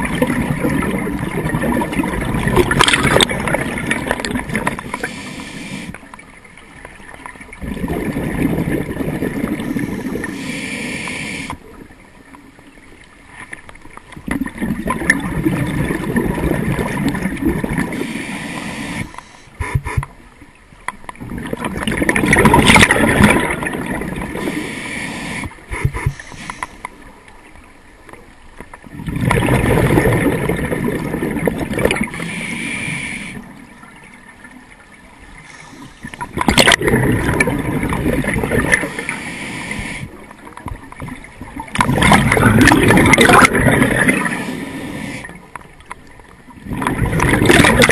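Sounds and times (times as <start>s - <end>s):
diver inhaling through regulator: 4.8s - 6.0s, 9.5s - 11.6s, 17.9s - 20.0s, 24.3s - 26.9s, 31.9s - 33.6s, 35.4s - 36.4s, 38.7s - 40.3s, 43.8s - 45.5s
diver exhaling bubbles: 7.6s - 10.3s, 21.2s - 24.7s, 29.0s - 32.2s, 36.0s - 40.0s, 41.7s - 45.3s, 46.6s - 47.9s.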